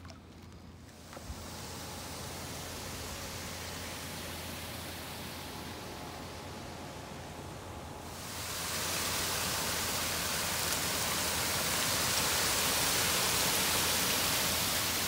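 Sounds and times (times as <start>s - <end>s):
water rushing into a drain: 8.1s - 15.0s.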